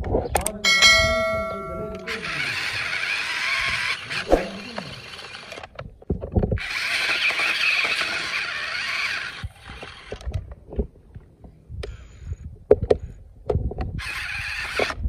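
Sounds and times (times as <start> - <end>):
electric motors whining: 1.9 - 5.8, 6.6 - 10.3.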